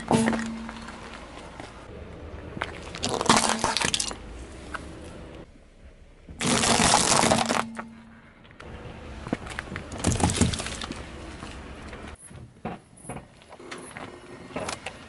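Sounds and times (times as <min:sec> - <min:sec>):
tyre crunching brittle objects: 0:02.6 - 0:04.9, 0:06.4 - 0:08.0, 0:09.4 - 0:12.0.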